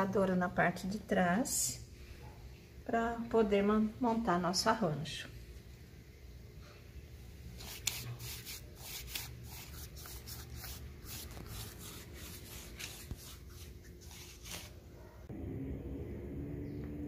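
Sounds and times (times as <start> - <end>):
paintbrush scrubbing on bark: 7.6 - 14.8.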